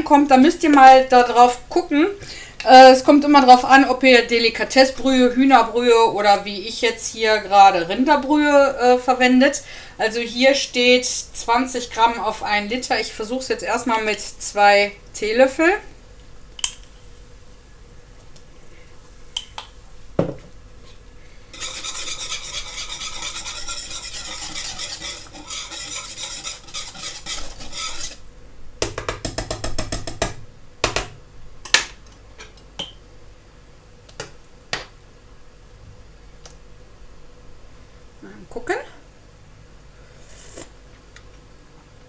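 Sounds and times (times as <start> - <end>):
whisk clinking in a pot: 21.6 - 28.2.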